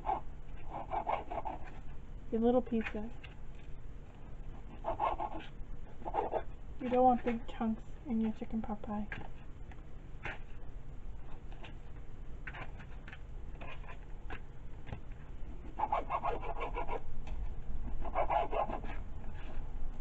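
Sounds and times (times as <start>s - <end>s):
knife rasping through meat: 0.0s - 1.9s, 15.6s - 17.0s, 18.0s - 19.5s.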